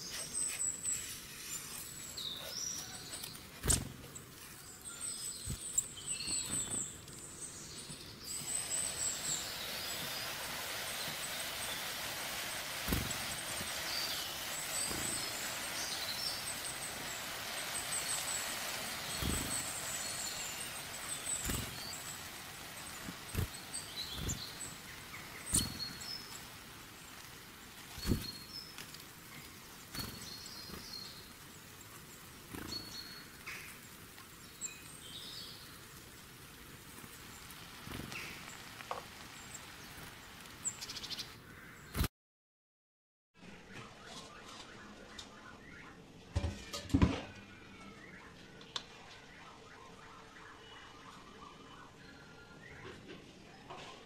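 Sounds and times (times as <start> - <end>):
birds chirping: 0.0 - 42.1, 43.4 - 46.7, 47.3 - 54.0
curry sizzling in a pan: 8.2 - 41.2.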